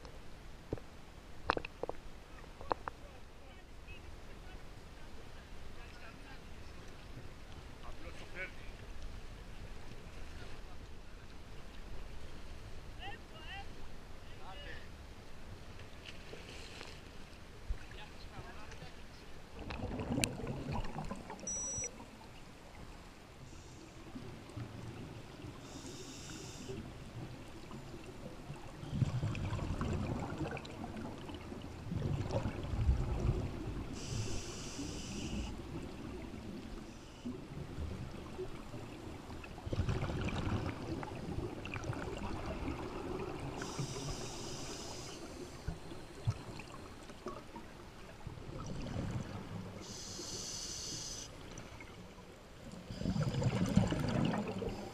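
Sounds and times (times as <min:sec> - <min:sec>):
low rumble of water: 0:00.0 - 0:54.9
muffled underwater bubbling bursts: 0:19.6 - 0:21.8, 0:28.4 - 0:34.4, 0:52.9 - 0:54.9.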